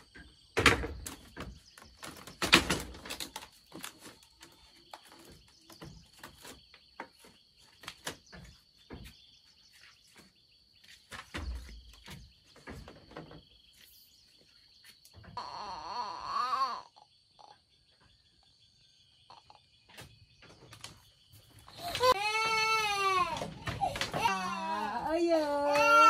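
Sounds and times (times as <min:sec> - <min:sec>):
high insect drone: 0:14.7 - 0:20.4
baby crying: 0:15.4 - 0:17.1, 0:21.8 - 0:26.0.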